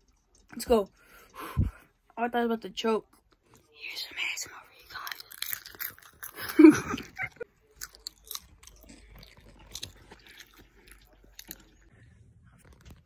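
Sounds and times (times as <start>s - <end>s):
popcorn crunching: 4.2s - 11.9s.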